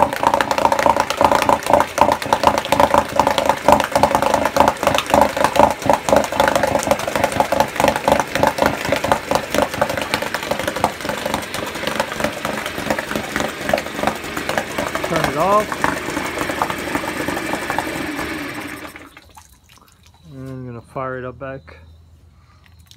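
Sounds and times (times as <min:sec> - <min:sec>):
outboard motor running: 0:00.0 - 0:19.3.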